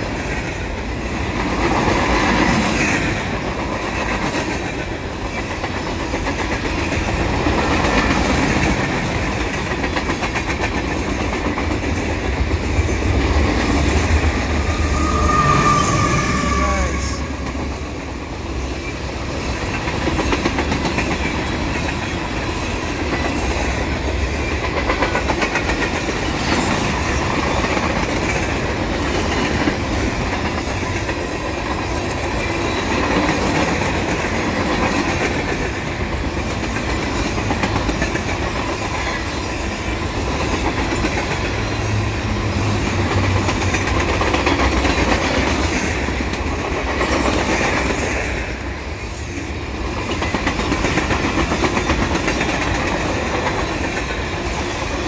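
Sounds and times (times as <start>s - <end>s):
freight train wheels rumbling: 0.0s - 55.0s
wheels clacking over rail joints: 18.8s - 48.5s.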